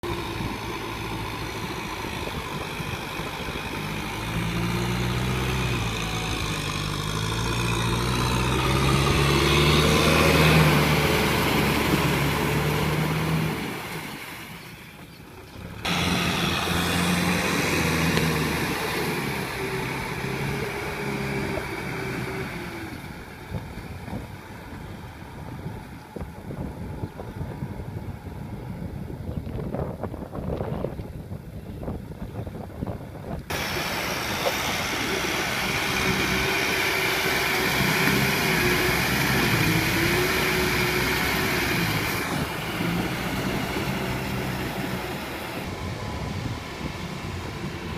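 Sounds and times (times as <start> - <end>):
tractor diesel engine under load: 0.0 - 47.9.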